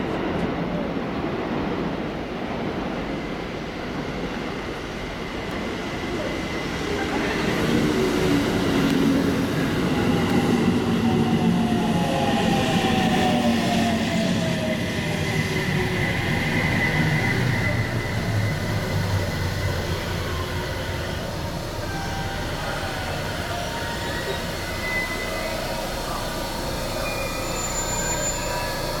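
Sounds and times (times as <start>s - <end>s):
standing train humming: 3.6s - 29.0s
electric train braking: 6.6s - 29.0s
train motor whine: 7.7s - 29.0s.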